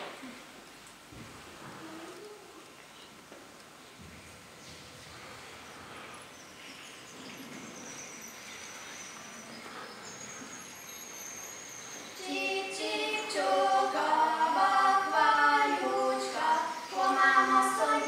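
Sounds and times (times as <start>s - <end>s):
room hiss: 0.0s - 18.0s
group singing in harmony: 12.2s - 18.0s.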